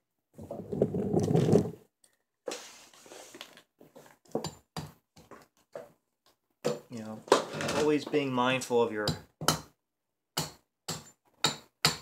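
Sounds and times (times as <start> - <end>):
hatchet tapping wood: 9.0 - 9.7, 10.4 - 12.0.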